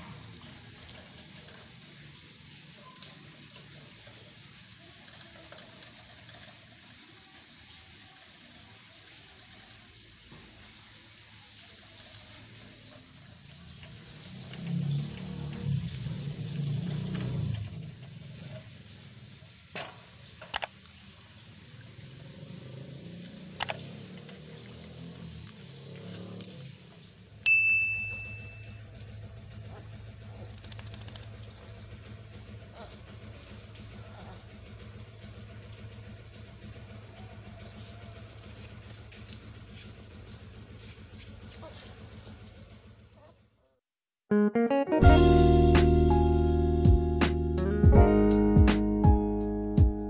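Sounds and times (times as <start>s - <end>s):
puppy lapping and slurping: 29.6s - 31.8s.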